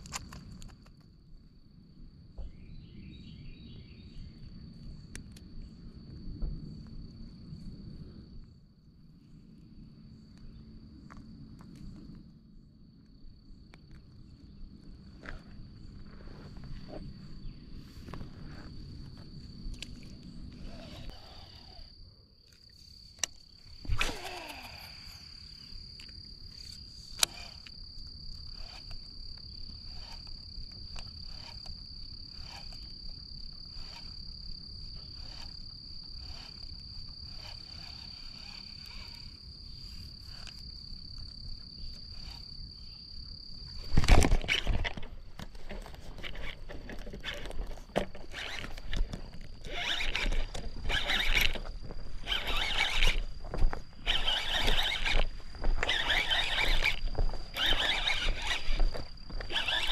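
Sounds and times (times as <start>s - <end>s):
high-pitched insect drone: 18.7s - 22.0s, 22.7s - 45.0s, 48.1s - 59.9s.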